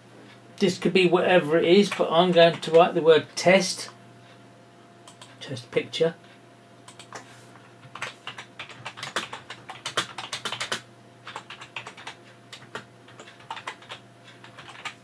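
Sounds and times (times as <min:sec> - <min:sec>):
computer keyboard typing: 0:01.8 - 0:02.9, 0:05.1 - 0:05.3, 0:06.9 - 0:07.2, 0:07.8 - 0:15.0.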